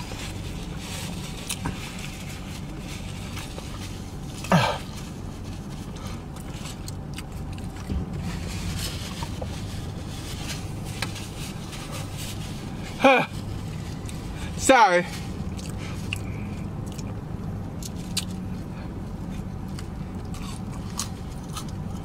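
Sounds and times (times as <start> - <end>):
faint rustles: 0.0 - 16.8
low hum inside car: 0.0 - 22.0
man clearing throat: 4.5 - 4.9.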